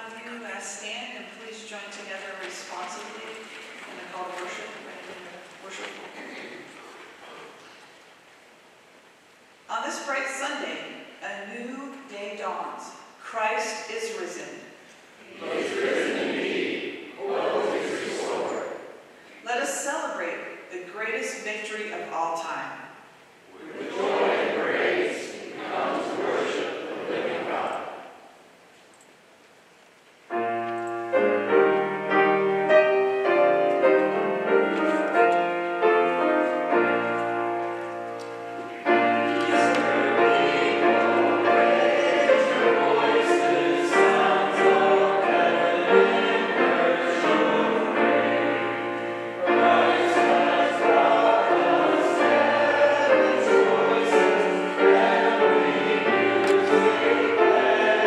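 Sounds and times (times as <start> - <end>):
congregation singing a hymn: 15.2 - 19.1, 23.5 - 28.2, 30.4 - 58.0
piano playing a hymn: 23.6 - 28.0, 30.3 - 58.0.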